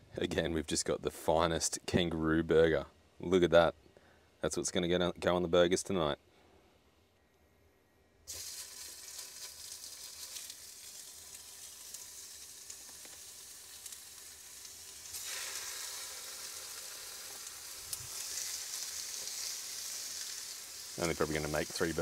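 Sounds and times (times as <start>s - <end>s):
patties sizzling in frying pan: 8.3s - 22.0s.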